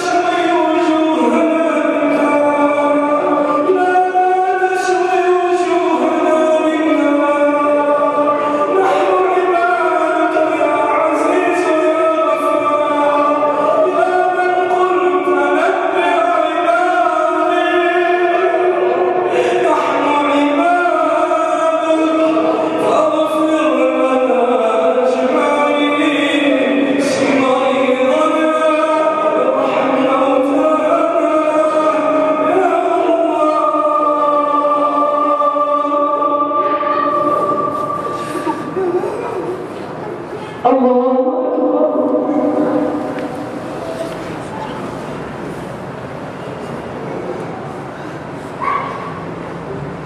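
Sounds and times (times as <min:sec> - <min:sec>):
men chanting melodically: 0:00.0 - 0:39.6.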